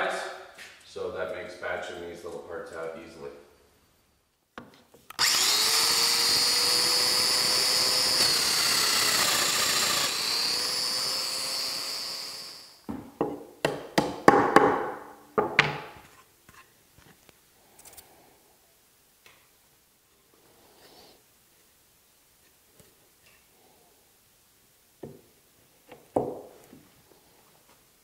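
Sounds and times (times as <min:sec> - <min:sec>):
power joiner whining: 0:05.1 - 0:12.8.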